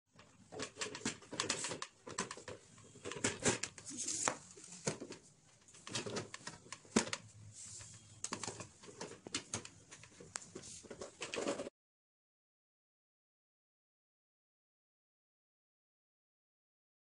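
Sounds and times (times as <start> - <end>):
plastic containers clicking and knocking: 0.2 - 7.3, 8.2 - 11.7.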